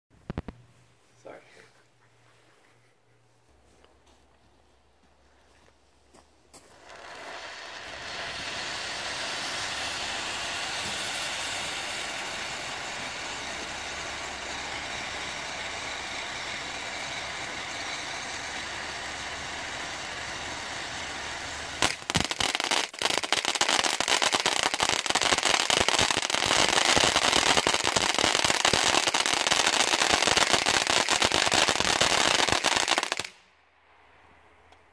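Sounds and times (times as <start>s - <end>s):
firework fountain hissing: 6.5s - 33.4s
dense firework crackling: 6.5s - 33.5s
sharp pops: 21.8s - 29.0s.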